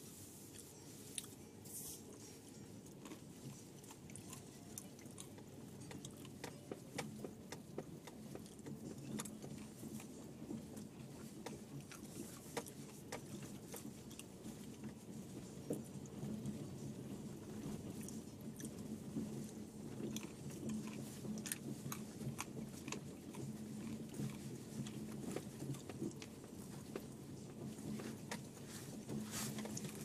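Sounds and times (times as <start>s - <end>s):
car cabin low rumble: 2.1s - 30.0s.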